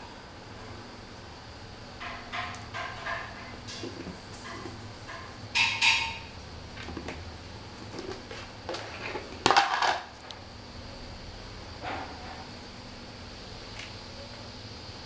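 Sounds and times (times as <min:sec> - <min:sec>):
lid clattering on tile floor: 0:09.4 - 0:10.1.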